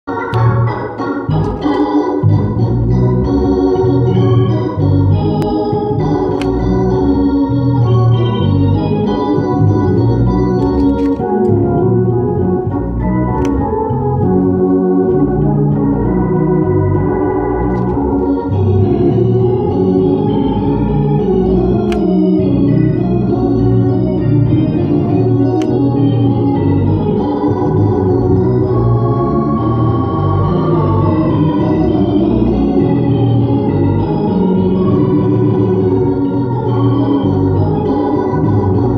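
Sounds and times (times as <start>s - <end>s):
drawbar organ chords: 0.1s - 38.9s
low bass: 2.2s - 38.9s
sharp clicks: 10.6s - 11.5s.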